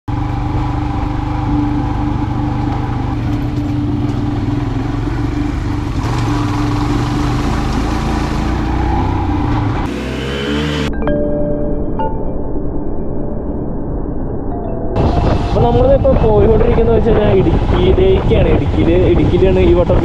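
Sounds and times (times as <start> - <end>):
motorcycle engine running: 0.1 - 10.9, 15.0 - 20.0.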